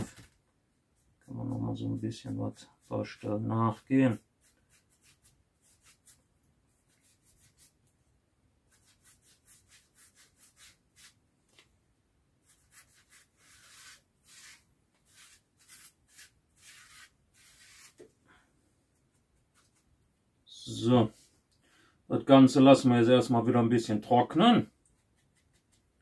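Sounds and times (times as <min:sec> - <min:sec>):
sponge rubbing on foam: 0:04.1 - 0:06.2, 0:08.7 - 0:11.2, 0:12.4 - 0:18.0.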